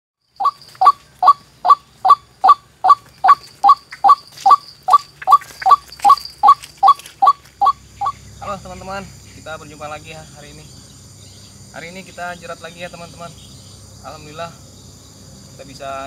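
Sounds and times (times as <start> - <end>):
waterhen calling: 0.4 - 8.2.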